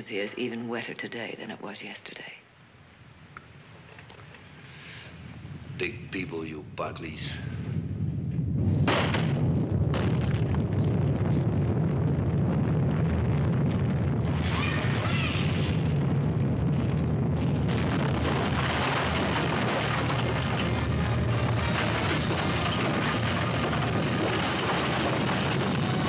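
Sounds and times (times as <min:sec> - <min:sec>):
deep earthquake rumble: 0:03.8 - 0:26.0
building cracks and crashes: 0:08.8 - 0:26.0
falling debris crumbling: 0:08.8 - 0:26.0.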